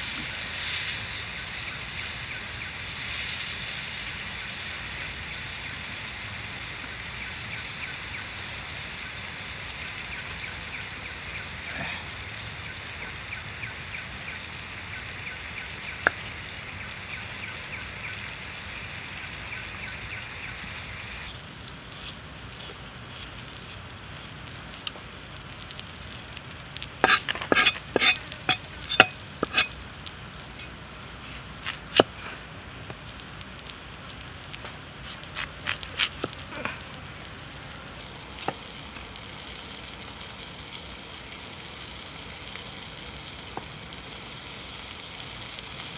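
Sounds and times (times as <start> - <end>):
knife cutting potato on board: 27.0 - 29.7.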